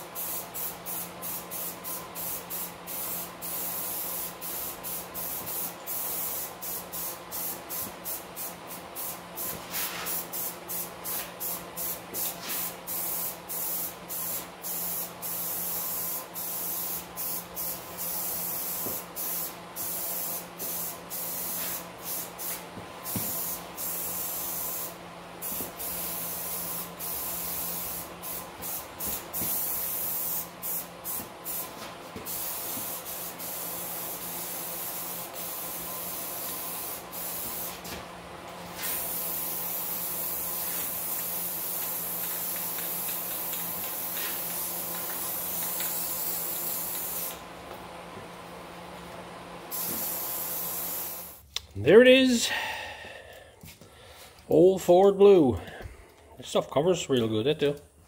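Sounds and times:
aerosol spray can hissing: 0.2s - 38.0s, 38.8s - 47.4s, 49.7s - 51.4s.

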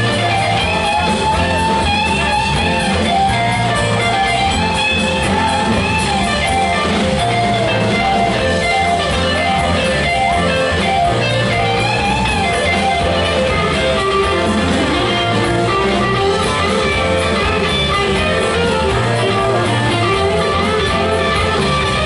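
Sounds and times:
bending guitar lead line: 0.0s - 22.0s
live rock band playing: 0.0s - 22.0s.

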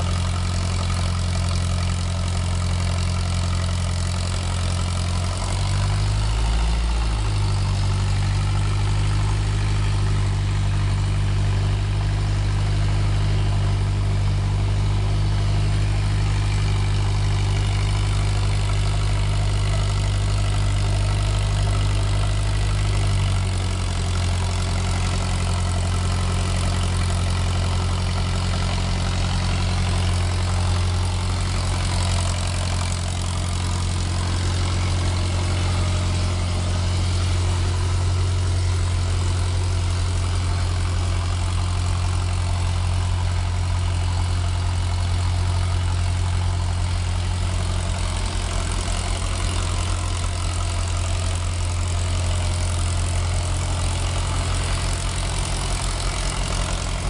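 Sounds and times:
generator engine humming: 0.0s - 57.0s.

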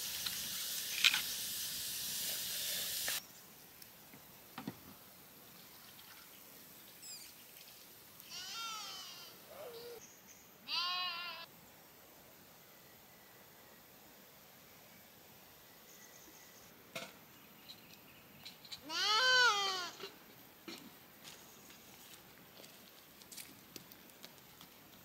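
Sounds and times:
steady hiss: 0.0s - 10.8s
sheep bleating: 10.7s - 11.5s.

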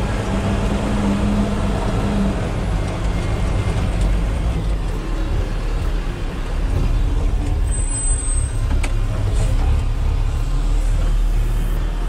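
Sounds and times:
diesel engine rumbling: 0.0s - 12.0s.

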